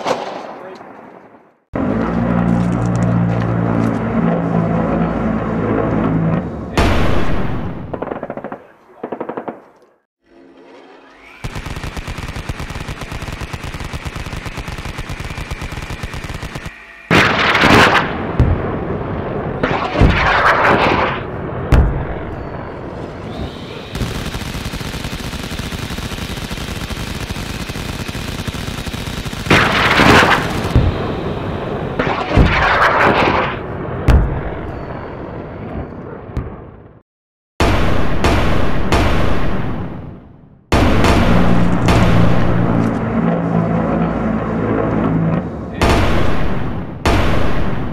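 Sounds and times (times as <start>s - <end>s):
heavy explosions: 3.1s - 9.6s, 11.4s - 37.0s, 37.6s - 47.9s
rapid machine-gun fire: 11.4s - 18.6s, 23.8s - 31.3s, 40.7s - 42.8s.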